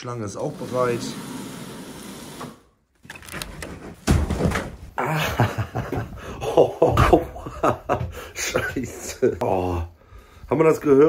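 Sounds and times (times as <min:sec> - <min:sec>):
rustling and handling knocks: 0:03.0 - 0:05.0
head thudding against door: 0:04.0 - 0:04.9.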